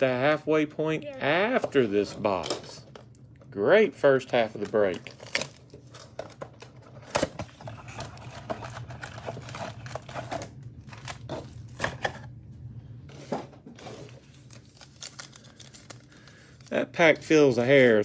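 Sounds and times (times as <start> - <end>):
cardboard and foil crackling: 4.1 - 12.3, 13.8 - 17.7.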